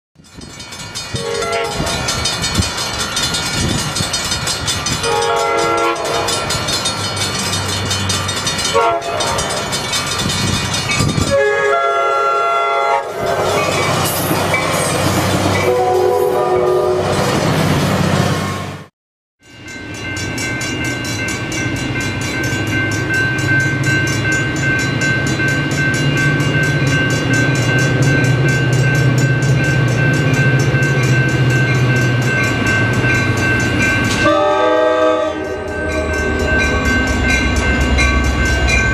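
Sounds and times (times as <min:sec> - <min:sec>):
train wheels rumbling and clattering: 0:00.2 - 0:11.6, 0:13.0 - 0:15.8, 0:19.9 - 0:38.9
train horn blasts: 0:01.2 - 0:02.0, 0:05.0 - 0:06.5, 0:08.7 - 0:09.6, 0:11.2 - 0:13.3, 0:15.6 - 0:17.2, 0:34.2 - 0:36.6.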